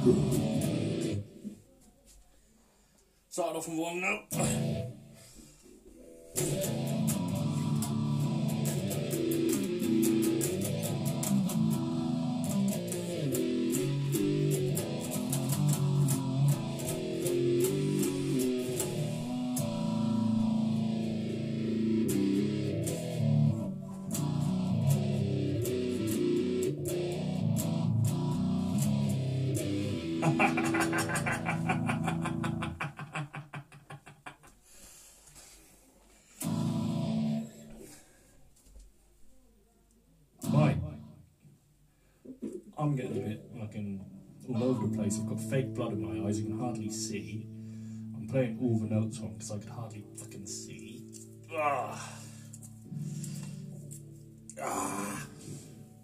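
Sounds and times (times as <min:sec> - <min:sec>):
loud guitar strum: 0:00.0 - 0:01.2, 0:04.3 - 0:05.1, 0:06.4 - 0:32.9, 0:36.4 - 0:37.6
electric guitar with sweeping effect: 0:00.0 - 0:01.4, 0:04.3 - 0:05.2, 0:06.0 - 0:33.4, 0:36.4 - 0:38.0, 0:40.4 - 0:41.2, 0:44.4 - 0:56.0.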